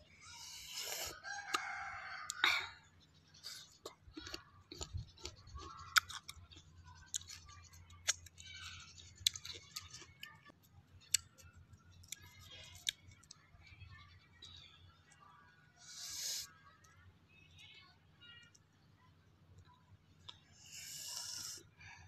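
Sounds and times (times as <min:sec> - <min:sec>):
crisp bites and chewing: 0:03.5 - 0:11.4.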